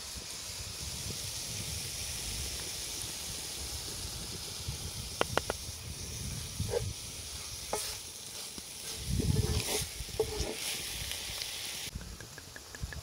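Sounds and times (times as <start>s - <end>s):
food sizzling in a skillet: 0.0s - 11.9s
wooden spatula scraping a pan: 6.6s - 11.4s.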